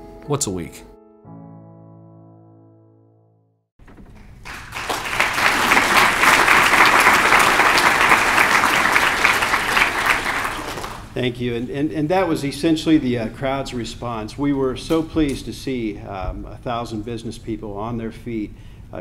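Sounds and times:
piano music: 0.0 - 3.6
large audience applauding: 4.0 - 11.1.

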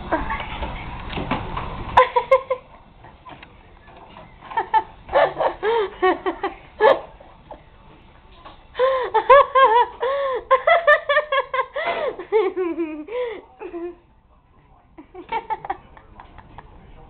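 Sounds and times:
person laughing: 4.7 - 7.1, 8.8 - 14.0.

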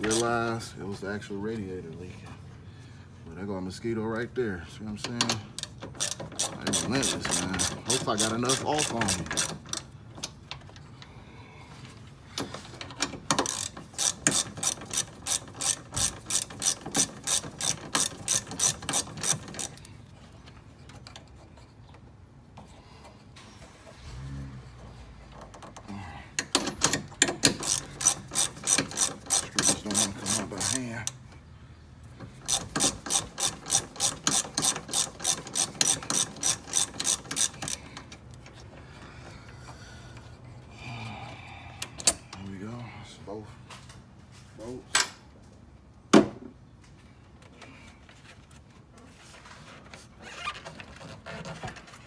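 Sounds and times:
socket ratchet clicking: 5.3 - 9.9, 13.3 - 19.8, 26.4 - 31.2, 32.4 - 38.4.

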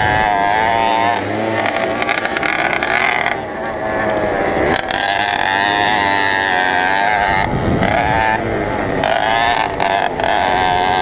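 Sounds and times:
two-stroke moped engine revving: 0.0 - 11.0.

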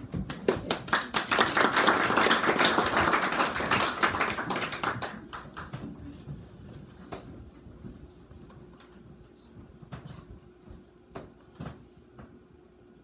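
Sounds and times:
audience applauding: 0.2 - 5.8.

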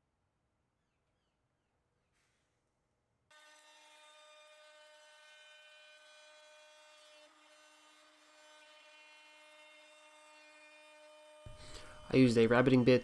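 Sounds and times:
router whining: 3.3 - 13.0.

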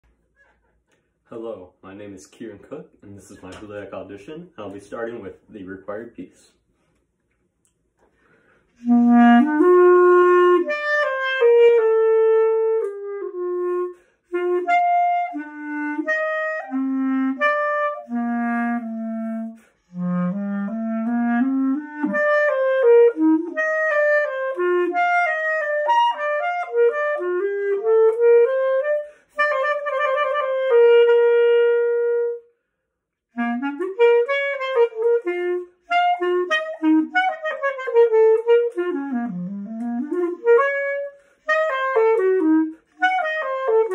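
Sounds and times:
solo clarinet melody: 8.8 - 43.9.

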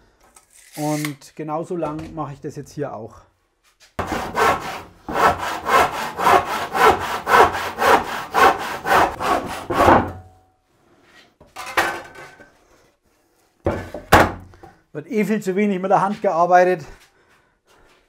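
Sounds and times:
hand saw cutting wood: 4.0 - 10.1
wooden knock: 13.7 - 14.5.

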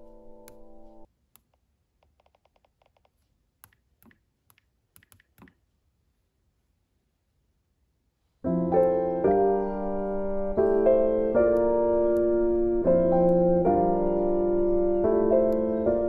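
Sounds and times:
solo piano music: 0.0 - 1.1, 8.4 - 16.0.

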